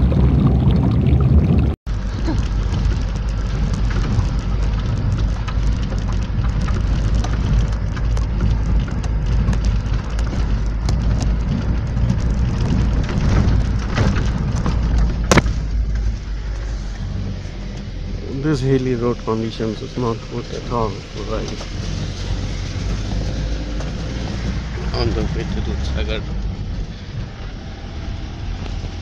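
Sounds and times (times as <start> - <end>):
vehicle rumbling on rough road: 0.0 - 29.0
rattles and small knocks: 1.9 - 18.1, 20.6 - 27.5.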